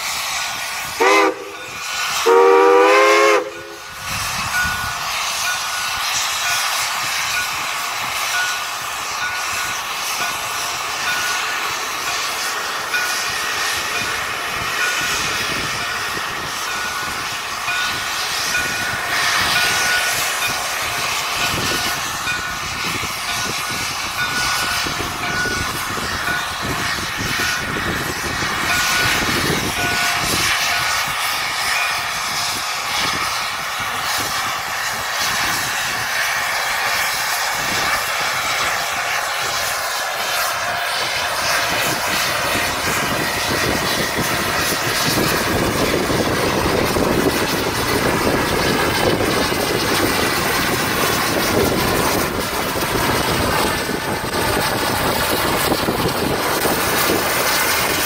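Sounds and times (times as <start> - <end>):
steam locomotive passing: 0.0 - 58.0
wind buffeting microphone: 3.5 - 58.0.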